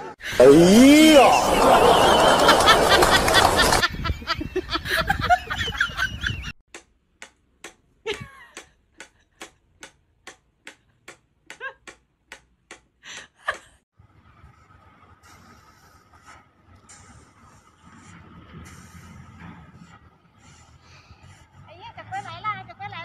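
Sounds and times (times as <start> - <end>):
voices: 0.2 - 3.8, 21.7 - 23.0.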